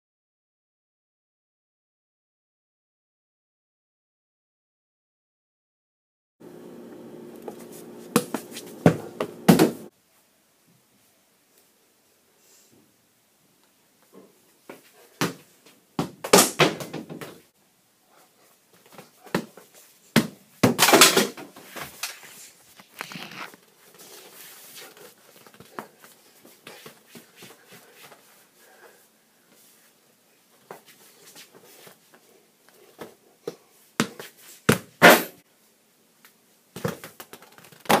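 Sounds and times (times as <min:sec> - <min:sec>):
feet stepping and scuffing: 0:07.4 - 0:09.9
ball bouncing on hard floor: 0:08.1 - 0:09.8.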